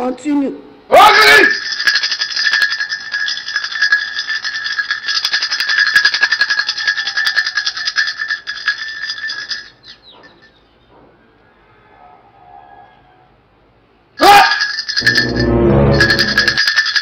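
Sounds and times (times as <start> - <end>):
handheld bell jangling: 1.5 - 10.7, 14.3 - 17.0.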